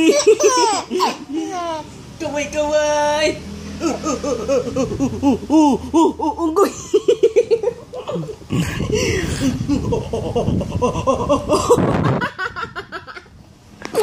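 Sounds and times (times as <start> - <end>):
person laughing heartily: 3.8 - 13.4.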